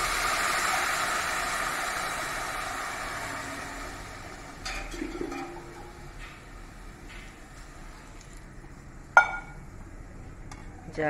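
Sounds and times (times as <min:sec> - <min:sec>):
short ringing knock: 0:09.2 - 0:09.6.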